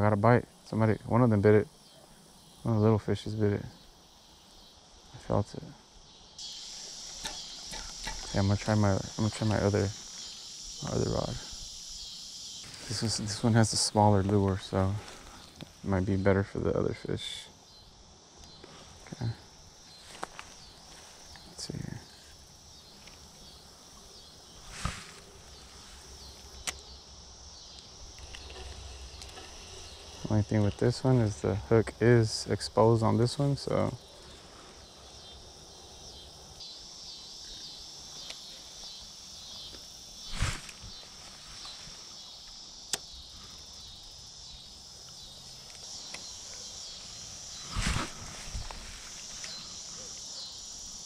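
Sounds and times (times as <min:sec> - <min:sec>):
insects chirping: 0:00.0 - 0:51.0
sharp click: 0:26.6 - 0:26.8.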